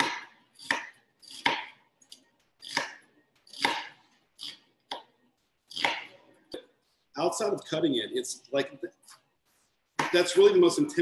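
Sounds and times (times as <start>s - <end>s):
knife chopping vegetables: 0.0s - 6.7s, 10.0s - 10.4s.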